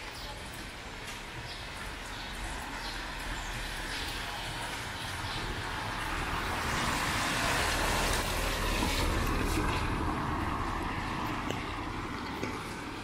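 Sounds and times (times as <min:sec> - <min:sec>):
car tyres hissing on wet road: 0:04.5 - 0:11.4.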